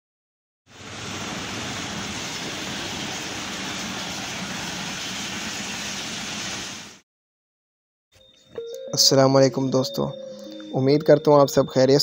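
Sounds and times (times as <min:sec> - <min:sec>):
train wheels rushing on rails: 0:00.8 - 0:06.7.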